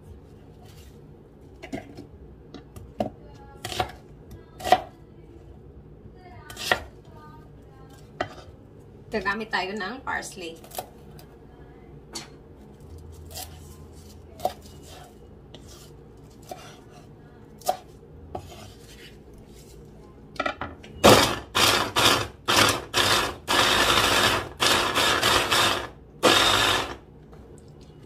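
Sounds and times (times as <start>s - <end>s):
electric food chopper bursts: 21.0s - 27.0s.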